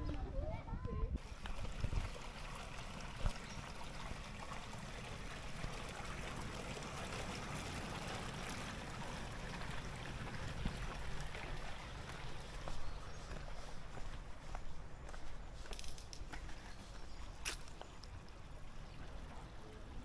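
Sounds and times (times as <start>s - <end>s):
water rushing: 1.2s - 14.4s, 17.3s - 20.0s.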